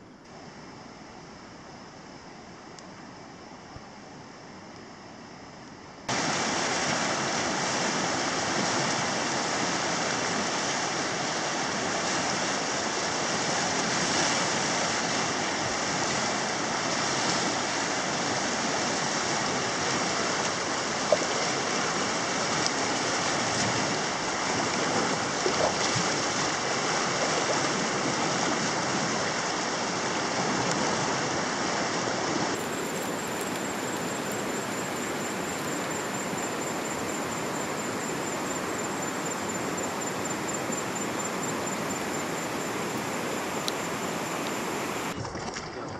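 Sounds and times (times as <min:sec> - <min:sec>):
steady hiss: 0:00.0 - 0:21.1, 0:32.4 - 0:45.2
river rushing: 0:06.1 - 0:45.2
thin high steady tone: 0:32.6 - 0:45.2.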